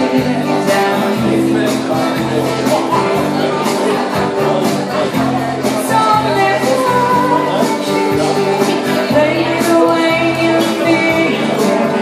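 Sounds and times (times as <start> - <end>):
woman singing: 0.0 - 1.6, 5.6 - 12.0
acoustic guitars strummed: 0.0 - 12.0.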